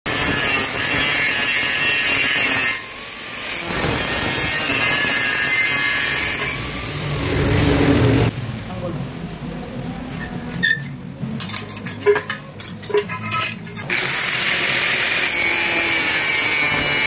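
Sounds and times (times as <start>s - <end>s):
angle grinder cutting steel: 0.1s - 8.3s, 13.1s - 17.0s.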